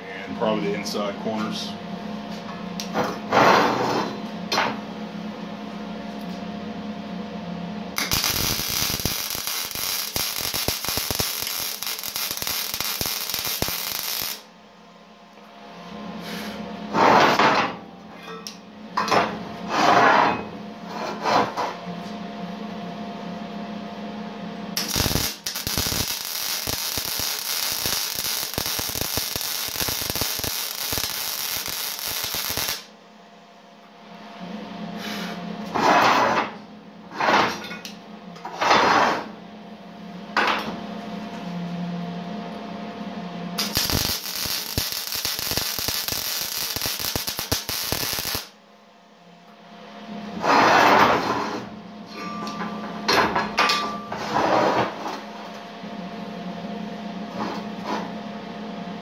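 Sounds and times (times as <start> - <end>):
welding arc crackling: 8.0 - 14.5, 24.8 - 32.9, 43.6 - 48.6.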